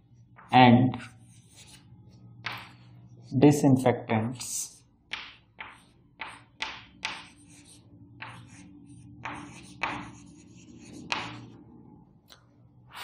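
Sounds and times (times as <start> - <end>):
chalk scratching on a chalkboard: 0.9 - 3.6, 4.3 - 11.6.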